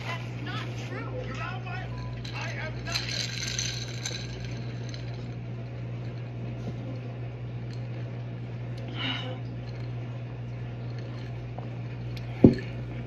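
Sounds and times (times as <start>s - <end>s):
low hum: 0.0s - 13.0s
ice clinking against glass: 1.7s - 6.2s.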